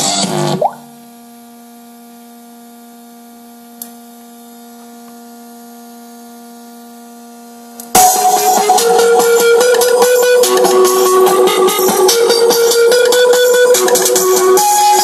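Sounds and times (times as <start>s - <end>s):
speaker electrical hum: 0.3s - 8.0s
loud guitar music: 8.0s - 15.0s.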